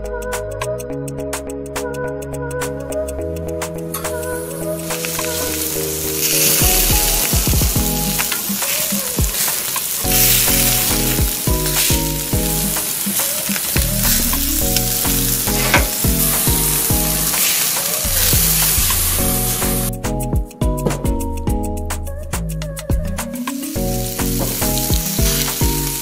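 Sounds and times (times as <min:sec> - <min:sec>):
background music: 0:00.0 - 0:26.0
ribs sizzling on a grill: 0:04.4 - 0:20.2, 0:23.6 - 0:26.0.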